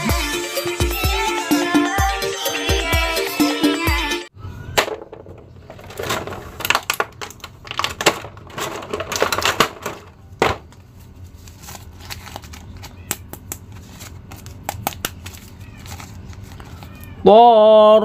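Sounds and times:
plastic packaging crackling: 5.6 - 17.1.

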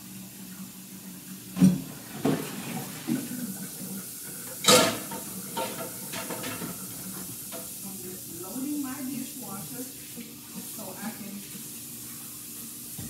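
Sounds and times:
dishes and pans clinking: 4.4 - 7.7
loud clunk of dishes: 4.6 - 6.8.

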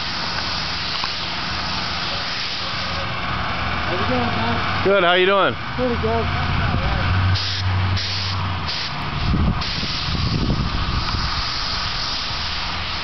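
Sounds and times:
paint sprayer hissing: 0.0 - 3.2, 7.4 - 13.0
low engine hum: 2.7 - 13.0.

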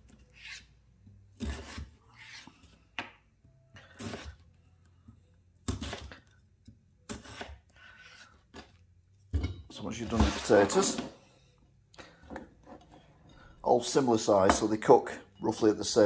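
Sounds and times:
knife slicing potato on board: 0.0 - 3.2, 3.8 - 4.4, 5.6 - 6.3, 7.0 - 8.8.

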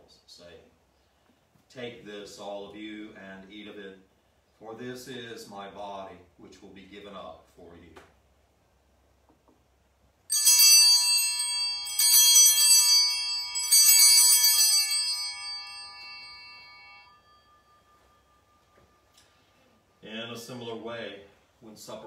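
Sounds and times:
altar bells ringing: 10.3 - 20.6.

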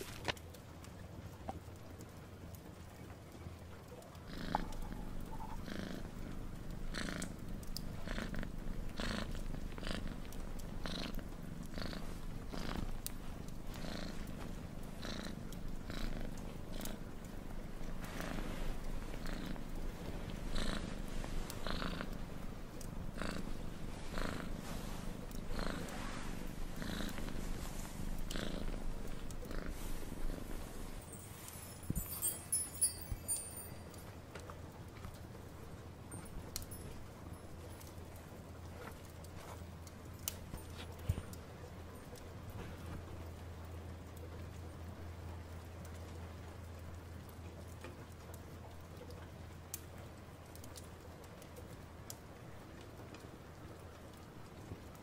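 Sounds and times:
cat purring: 0.0 - 55.0.

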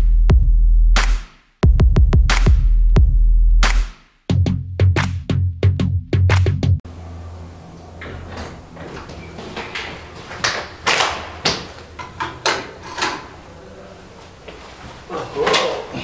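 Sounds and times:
door opening: 7.4 - 16.0.

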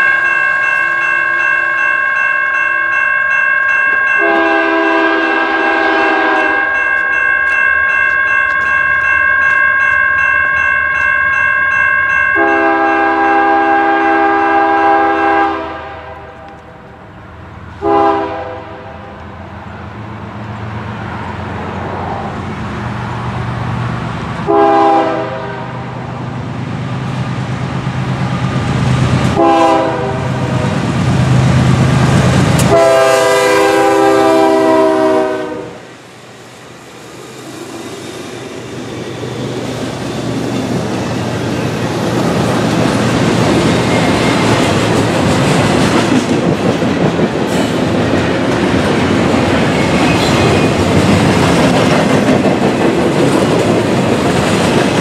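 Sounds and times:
train air horn blasts: 4.2 - 6.8, 12.4 - 16.6, 17.8 - 19.2, 24.5 - 25.9, 29.3 - 30.6, 32.6 - 35.9.

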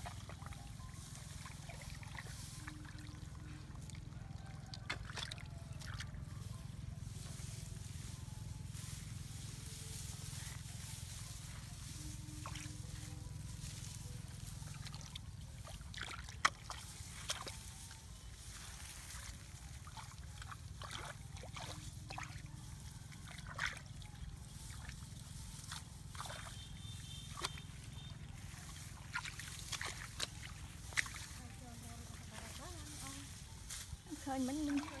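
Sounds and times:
grass rustling: 0.0 - 35.0
low steady rumble: 0.0 - 35.0
small splashes in muddy water: 0.1 - 6.4, 14.6 - 18.0, 18.7 - 33.3, 34.1 - 35.0.

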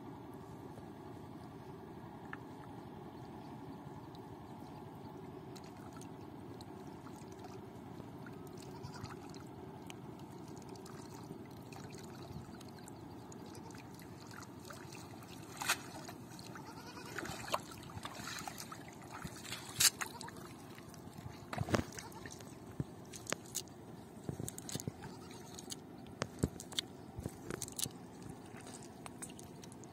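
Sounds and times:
low background rumble: 0.0 - 29.9
wading steps in water: 5.4 - 29.9
water splashing and dripping: 10.2 - 23.7
water running off a net: 15.0 - 20.8.

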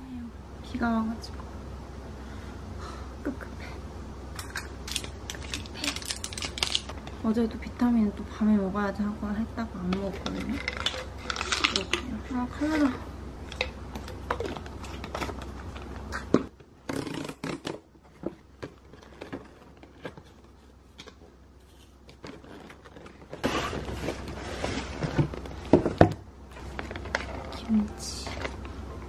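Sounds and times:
plastic wrapping crinkling: 4.8 - 7.3, 10.1 - 16.3, 18.4 - 28.7.

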